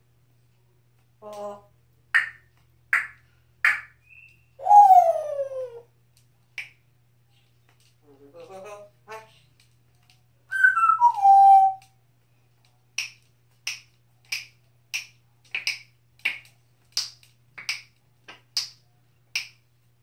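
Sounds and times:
parrot whistling: 0:10.5 - 0:11.8.

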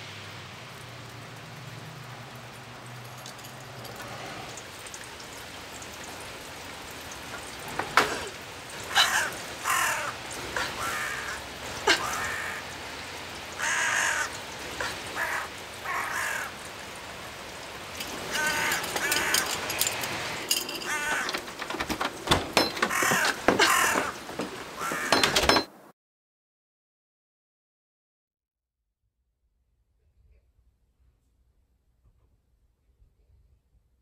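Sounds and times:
crow cawing: 0:07.9 - 0:17.0, 0:18.0 - 0:20.0, 0:20.7 - 0:25.4.

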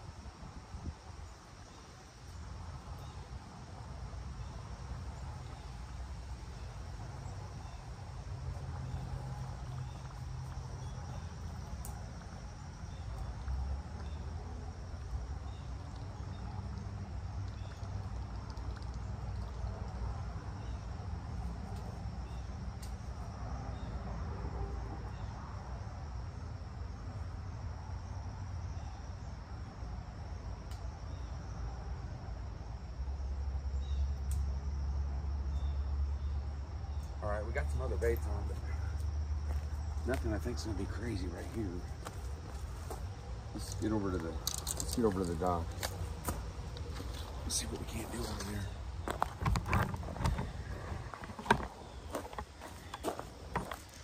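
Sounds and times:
wind rumbling on microphone: 0:00.0 - 0:01.8, 0:48.7 - 0:53.7
insects trilling: 0:00.0 - 0:54.0.

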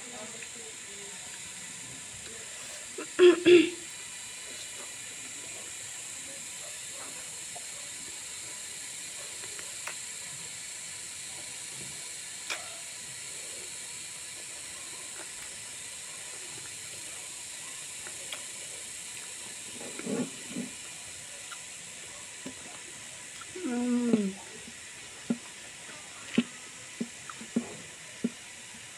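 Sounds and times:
steady hiss: 0:00.0 - 0:28.9
person chewing with mouth clicks: 0:09.4 - 0:10.0, 0:21.4 - 0:21.8, 0:22.4 - 0:28.5
low mouth sounds: 0:23.4 - 0:24.5.

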